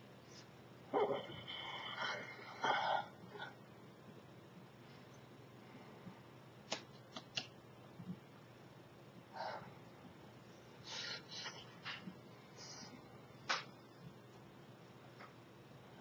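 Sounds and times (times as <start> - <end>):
hands clicking together: 6.7 - 7.5, 13.5 - 13.7.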